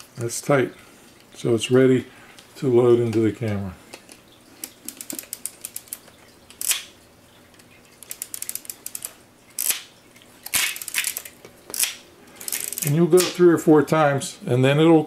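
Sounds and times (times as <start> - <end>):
camera parts clicking and snapping: 10.4 - 12.8.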